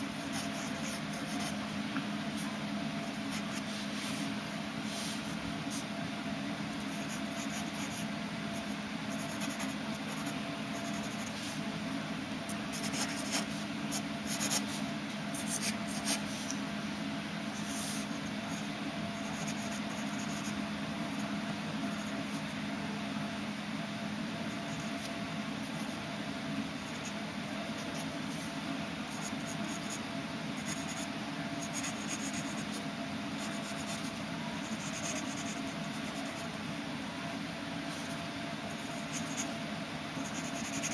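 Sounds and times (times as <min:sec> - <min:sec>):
steady low hum: 0:00.0 - 0:40.9
pencil scratching on paper: 0:00.1 - 0:01.6, 0:03.2 - 0:04.2, 0:06.8 - 0:11.6, 0:12.5 - 0:16.4, 0:19.2 - 0:20.6, 0:24.5 - 0:26.0, 0:30.6 - 0:32.8, 0:33.4 - 0:36.6, 0:40.2 - 0:40.9.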